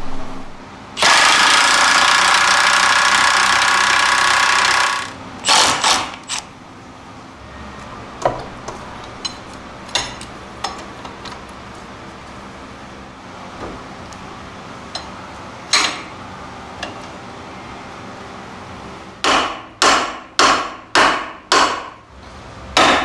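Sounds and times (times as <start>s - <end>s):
impact wrench hammering: 1.0s - 6.4s, 19.2s - 22.0s, 22.8s - 23.0s.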